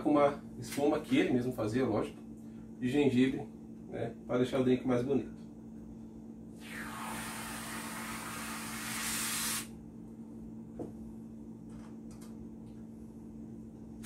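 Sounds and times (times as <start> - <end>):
aerosol can spraying hiss: 6.7 - 9.7.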